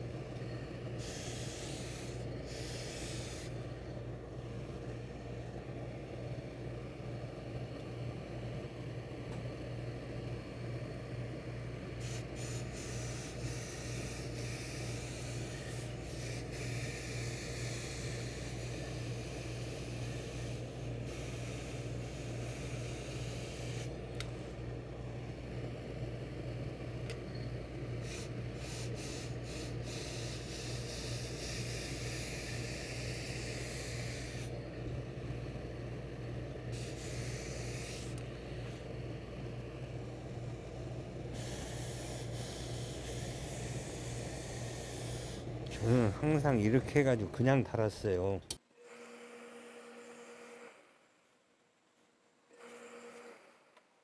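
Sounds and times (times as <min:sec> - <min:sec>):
low electrical hum: 0:00.0 - 0:54.0
steam hissing in spurts: 0:00.9 - 0:03.6, 0:12.0 - 0:24.0, 0:28.0 - 0:34.6, 0:36.7 - 0:38.8, 0:40.2 - 0:47.9.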